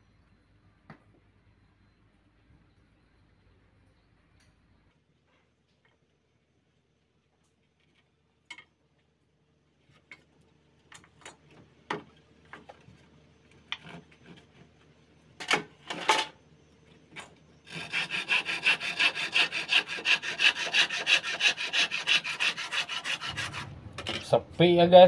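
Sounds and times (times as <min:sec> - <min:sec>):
hand saw cutting wood: 0:17.6 - 0:24.2.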